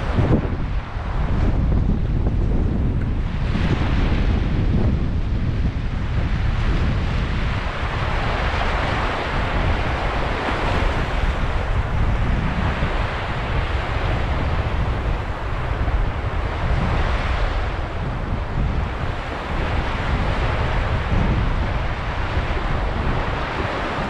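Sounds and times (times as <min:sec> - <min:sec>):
wind rumbling on microphone: 0:00.0 - 0:24.0
waves washing over pebbles: 0:06.6 - 0:24.0.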